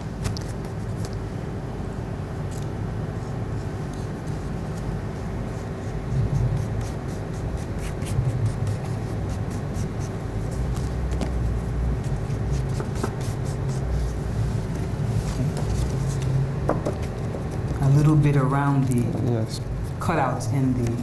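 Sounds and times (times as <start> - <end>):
low background hum: 0.0 - 21.0
brush spreading glue on paper: 3.2 - 16.3.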